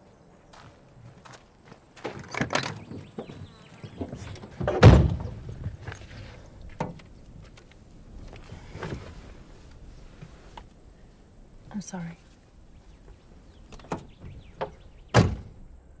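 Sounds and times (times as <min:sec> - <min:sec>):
car door thud: 0:04.6 - 0:05.4, 0:13.8 - 0:15.6.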